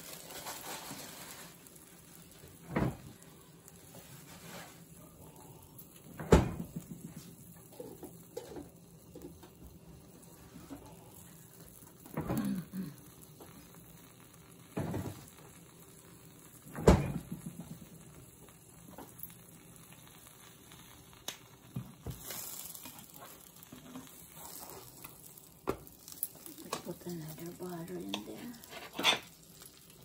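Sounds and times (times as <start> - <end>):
sandwich sizzling in a frying pan: 0.0 - 30.0
kitchen knocks and thumps: 2.7 - 3.0, 6.2 - 7.2, 14.8 - 15.2, 16.7 - 17.6.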